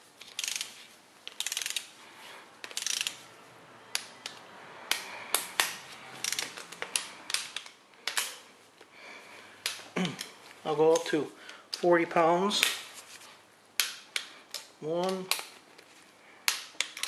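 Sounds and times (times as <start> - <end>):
sharp metal clicks: 0.2 - 1.9, 2.6 - 3.2
torque wrench ratcheting: 0.2 - 1.9, 2.6 - 3.2, 6.2 - 6.6.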